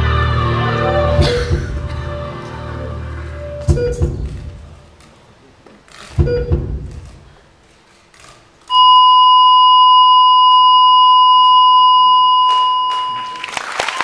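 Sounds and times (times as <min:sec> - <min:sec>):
backing track over speakers: 0:00.0 - 0:07.4
low hits: 0:01.1 - 0:05.1
long loud electronic beep: 0:08.7 - 0:13.5.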